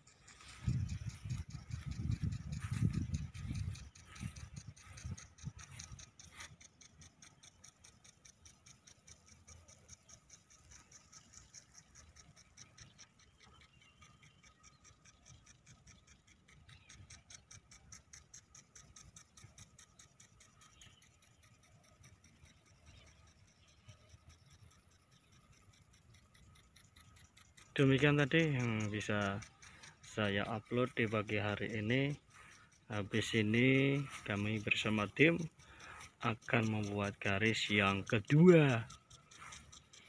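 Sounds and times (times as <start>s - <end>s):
sprinkler ticking: 0.0s - 40.0s.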